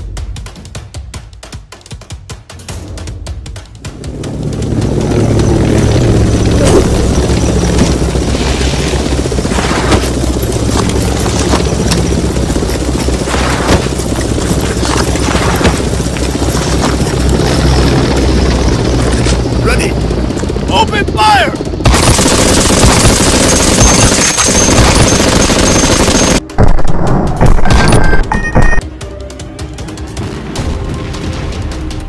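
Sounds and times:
gunfire and explosion bangs: 0:13.2 - 0:16.9, 0:21.8 - 0:28.8.

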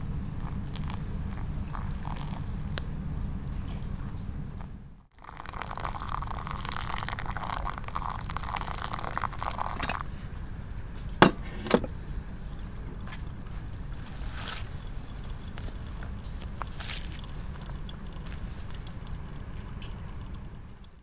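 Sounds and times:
hot water pouring onto coffee grounds: 0:00.4 - 0:02.8, 0:05.2 - 0:10.2, 0:12.5 - 0:21.0
pot knocks set down: 0:11.2 - 0:11.9.

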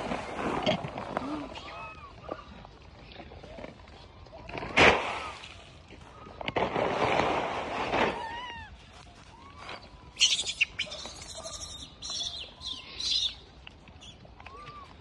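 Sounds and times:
monkeys calling: 0:10.2 - 0:13.4.

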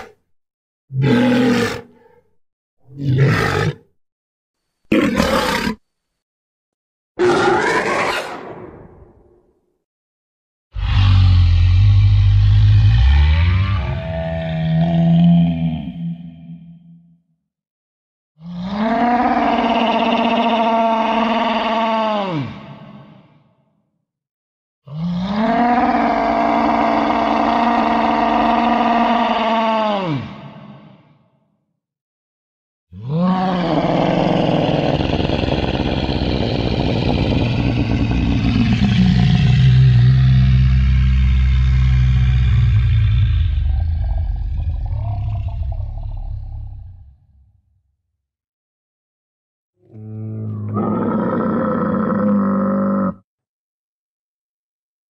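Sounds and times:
creature roars: 0:00.9 - 0:02.2, 0:02.8 - 0:03.9, 0:04.9 - 0:05.8, 0:07.2 - 0:08.5, 0:10.8 - 0:16.9, 0:18.4 - 0:23.4, 0:24.9 - 0:31.2, 0:33.0 - 0:47.5, 0:49.8 - 0:53.2.

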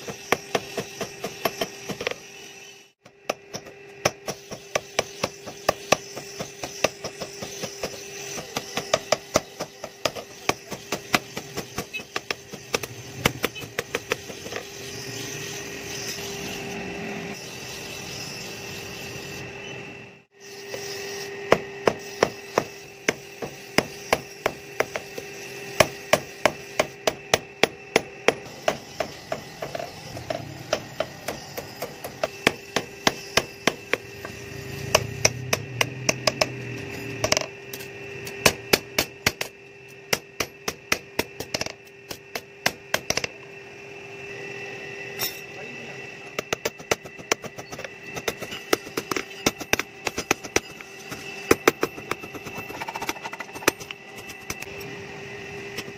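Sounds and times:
hammer striking steel on anvil: 0:00.0 - 0:02.3, 0:03.0 - 0:14.7, 0:21.4 - 0:43.3.

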